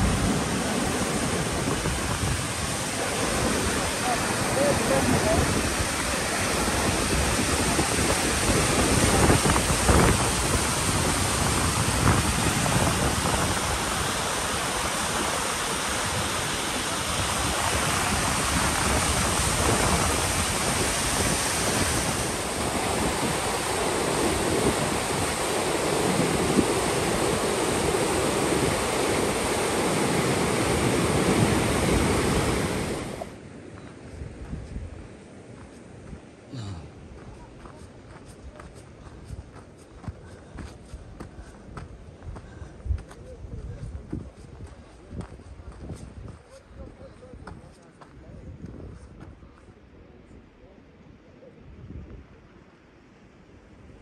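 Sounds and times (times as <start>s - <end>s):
river rushing: 0.0s - 33.7s
wind on microphone: 0.0s - 50.8s, 51.4s - 52.6s.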